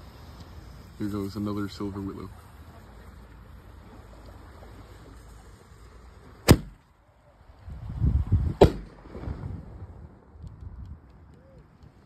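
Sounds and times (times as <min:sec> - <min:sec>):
firework launch thump: 0:06.4 - 0:06.8, 0:08.6 - 0:09.5
firework shell bursting bang: 0:06.5 - 0:06.8.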